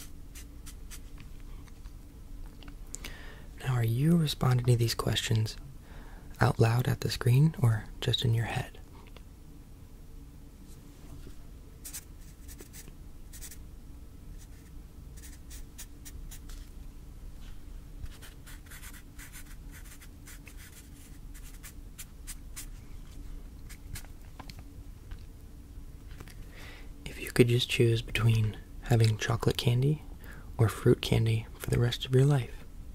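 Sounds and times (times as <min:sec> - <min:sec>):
pen scratching on paper: 0:14.4 - 0:16.6, 0:18.1 - 0:22.7.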